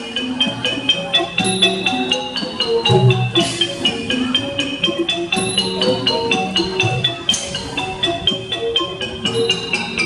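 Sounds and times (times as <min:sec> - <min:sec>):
sustained ringing pitched notes: 0:01.3 - 0:04.4
xylophone quick mallet strokes: 0:01.4 - 0:04.1.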